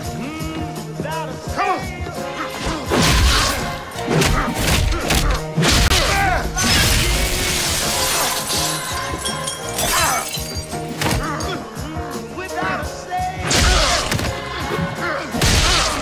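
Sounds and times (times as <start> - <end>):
dramatic music score: 0.0 - 16.0
glass shattering: 6.6 - 11.2.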